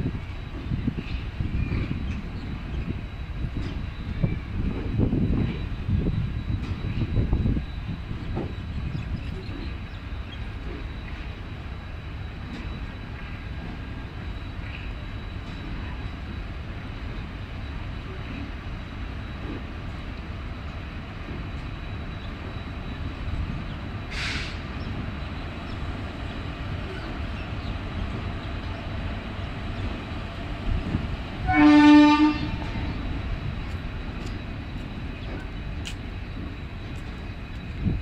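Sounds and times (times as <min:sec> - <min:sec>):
train coaches rumbling on rails: 0:00.0 - 0:38.0
brief hiss: 0:24.1 - 0:24.6
train horn blast: 0:31.4 - 0:33.0.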